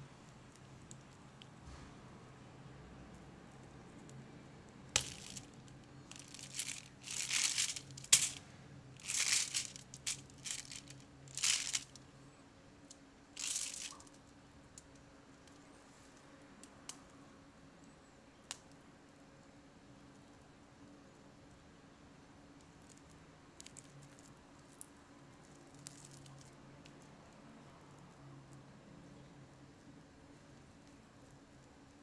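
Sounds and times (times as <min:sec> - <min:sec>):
sheet crackling: 0:05.0 - 0:08.4, 0:09.0 - 0:11.8.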